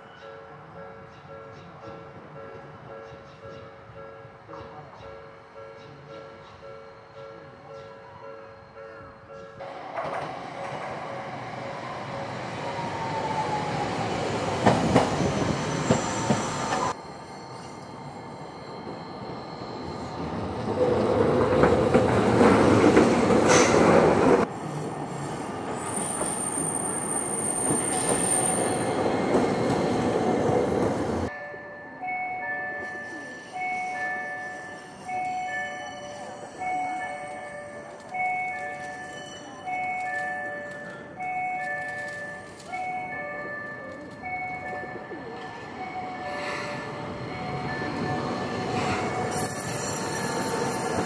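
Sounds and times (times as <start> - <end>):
tram passing close: 0.0 - 51.0
tram rolling rumble: 0.1 - 51.0
high wheel squeal: 24.8 - 30.0, 46.4 - 51.0.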